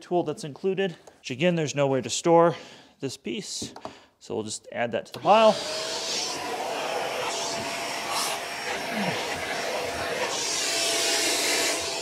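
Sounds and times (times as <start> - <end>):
vacuum cleaner suction rush: 5.2 - 12.0.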